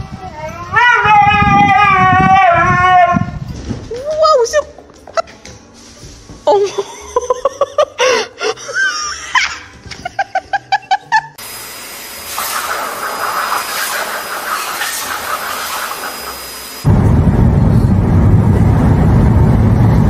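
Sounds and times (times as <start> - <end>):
laughter: 6.6 - 11.4
pet dryer blowing: 11.4 - 16.9.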